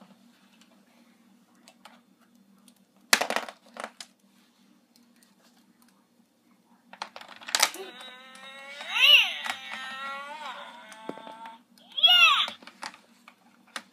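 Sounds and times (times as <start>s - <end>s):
faint steady hum: 0.0s - 13.9s
plastic toys clattering: 3.2s - 4.1s, 7.0s - 11.5s
plastic toy pieces clicking: 7.1s - 11.6s.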